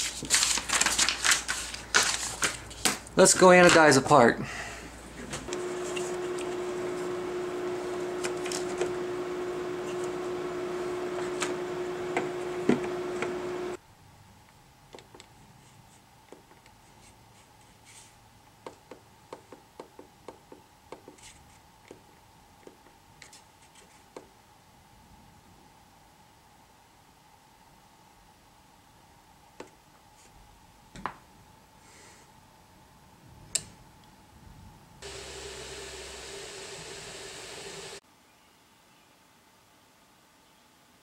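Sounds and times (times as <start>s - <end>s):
steady hum: 5.5s - 13.8s, 35.0s - 38.0s
hiss: 35.0s - 38.0s.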